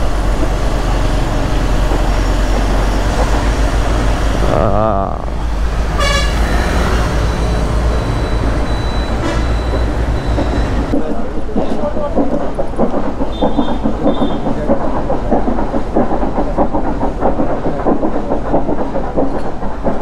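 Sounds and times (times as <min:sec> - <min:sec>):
vehicle horn toots: 0:06.0 - 0:07.2, 0:09.2 - 0:09.6.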